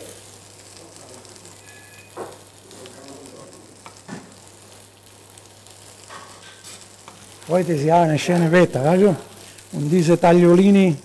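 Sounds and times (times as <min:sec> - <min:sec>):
onion and garlic sizzling in pan: 0:00.0 - 0:11.0.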